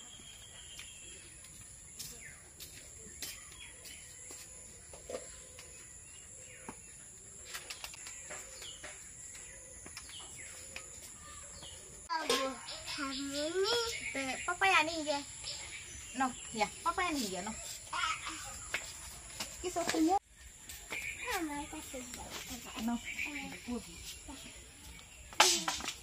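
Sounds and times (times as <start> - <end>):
birds chirping: 0.0 - 26.0.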